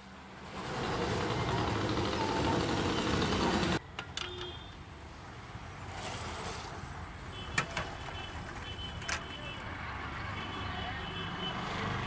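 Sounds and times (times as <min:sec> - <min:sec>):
street ambience: 0:00.0 - 0:12.0
small motorbike engine running: 0:00.6 - 0:03.8.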